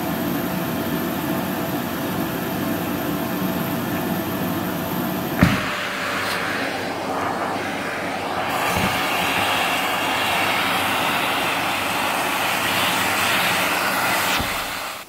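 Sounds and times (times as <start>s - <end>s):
vacuum cleaner running: 3.7s - 15.0s.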